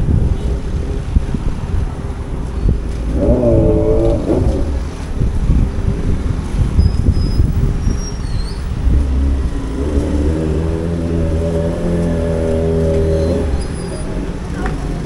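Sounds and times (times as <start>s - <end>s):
traffic rumble: 0.0s - 15.0s
vehicle engine passing close: 8.7s - 15.0s.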